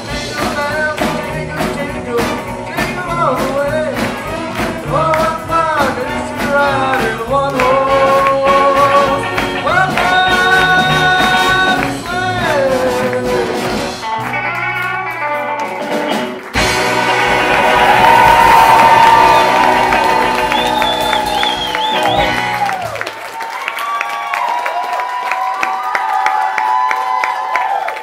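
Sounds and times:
rockabilly big band playing: 0:00.0 - 0:23.4
held horn chords: 0:02.4 - 0:15.1, 0:15.8 - 0:22.9.

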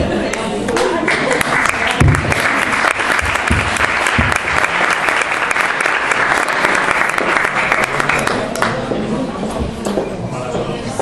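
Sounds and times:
audience applauding: 0:00.8 - 0:08.8.

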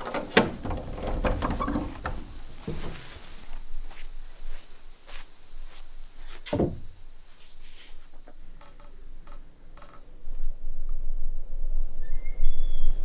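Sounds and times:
footsteps: 0:00.0 - 0:08.4
knocks: 0:06.4 - 0:06.9.

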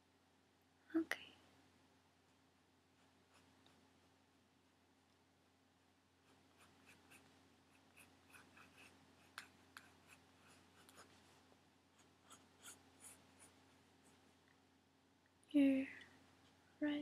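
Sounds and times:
pencil scratching on paper: 0:03.0 - 0:03.8, 0:06.2 - 0:11.3, 0:11.9 - 0:14.2.

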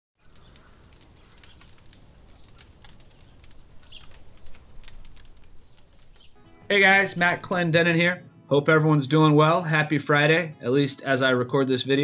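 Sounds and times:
light ticks: 0:00.2 - 0:06.4
bird chirps: 0:00.3 - 0:06.5.

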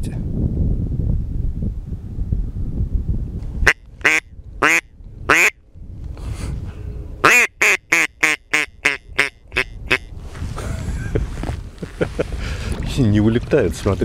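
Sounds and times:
duck call quacks: 0:03.7 - 0:05.6, 0:07.2 - 0:10.1.

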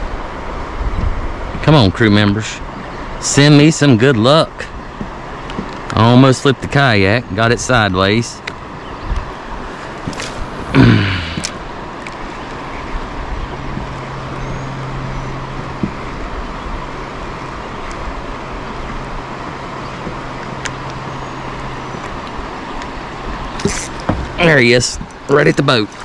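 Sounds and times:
wind on microphone: 0:00.7 - 0:01.6, 0:09.0 - 0:11.5
river water rushing: 0:09.4 - 0:12.4.

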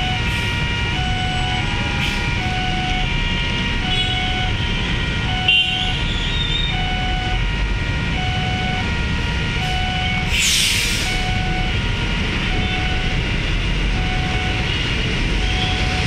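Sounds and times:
idling traffic hum: 0:00.0 - 0:16.0
level crossing alarm tone: 0:00.0 - 0:16.0
hiss: 0:10.3 - 0:11.0.

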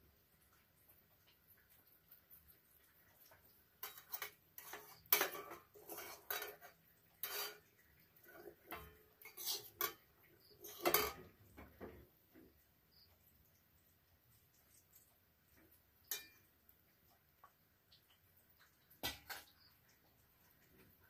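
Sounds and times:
spoon clinking on steel dishes: 0:03.8 - 0:07.7, 0:08.3 - 0:11.3, 0:16.0 - 0:16.5.

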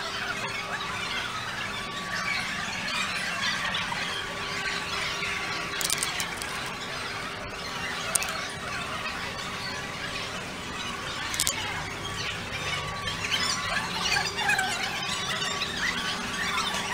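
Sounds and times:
sharp clicks: 0:05.8 - 0:06.8, 0:08.1 - 0:08.5, 0:11.3 - 0:11.7
animals squealing: 0:13.0 - 0:16.9.

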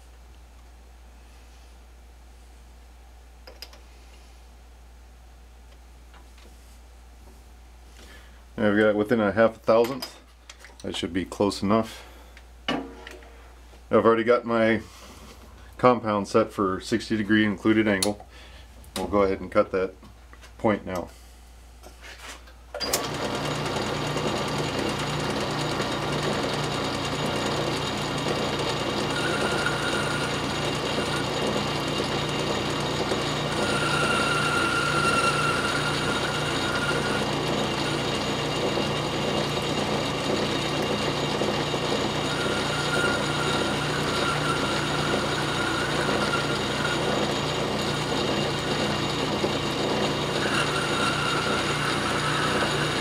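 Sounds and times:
high whine of cutting tool: 0:22.9 - 0:53.0
metal lathe running: 0:22.9 - 0:53.0.

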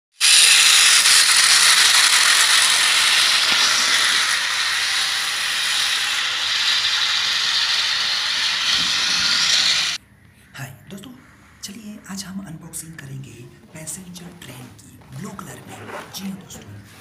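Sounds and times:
toy train motor whirring: 0:00.1 - 0:10.0.

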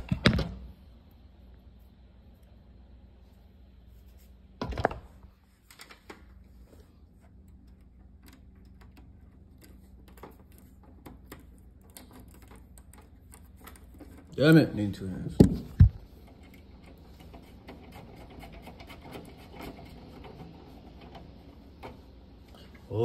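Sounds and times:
speaker wire clicks and taps: 0:07.2 - 0:14.4.

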